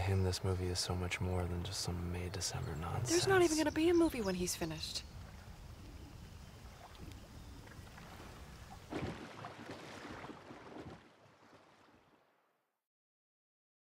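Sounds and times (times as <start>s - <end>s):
wind: 0.0s - 12.7s
water lapping: 1.8s - 12.5s.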